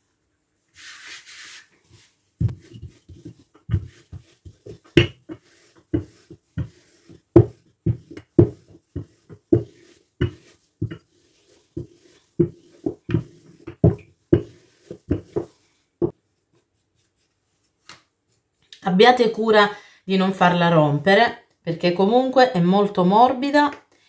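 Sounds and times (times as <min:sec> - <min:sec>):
flour being sprinkled: 0:00.7 - 0:13.7, 0:14.3 - 0:15.8
rolling pin rolling dough: 0:00.7 - 0:17.6.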